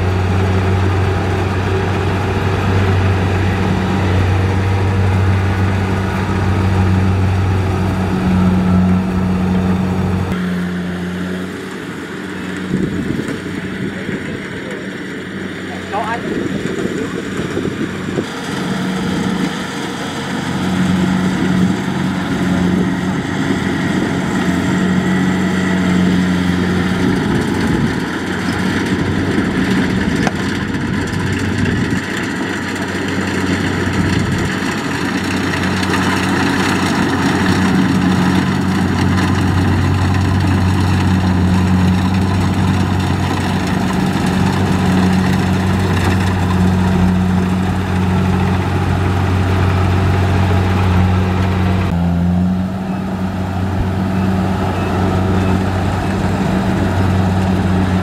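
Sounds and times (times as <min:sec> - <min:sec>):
diesel engine humming: 0:00.0 - 0:58.0
threshing machinery rushing: 0:00.0 - 0:58.0.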